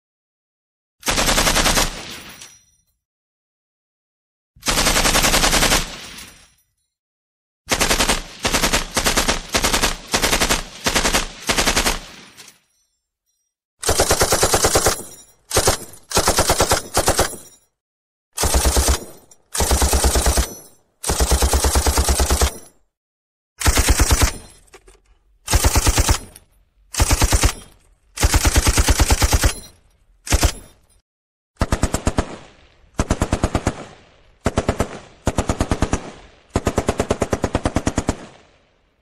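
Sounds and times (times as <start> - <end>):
machine gun bursts: 13.8 - 17.4, 18.4 - 22.7, 23.6 - 24.6, 25.5 - 29.7, 30.3 - 30.6.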